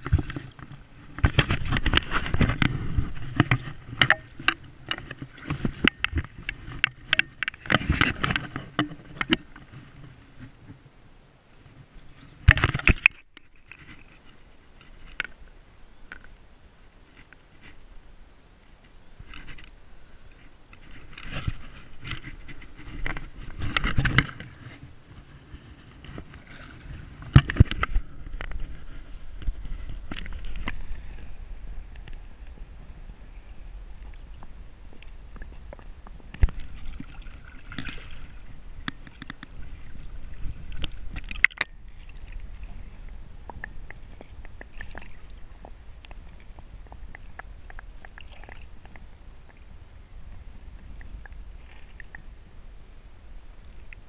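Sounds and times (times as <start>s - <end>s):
river water splashing: 18.6s - 54.0s.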